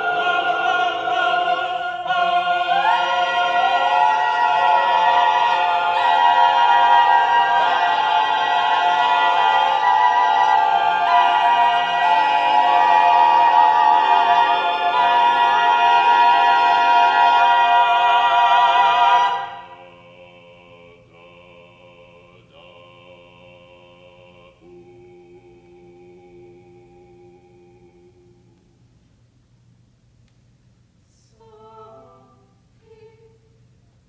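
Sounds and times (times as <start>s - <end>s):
choir singing sustained chord: 0.0s - 28.7s
soft high held tone: 24.6s - 29.0s.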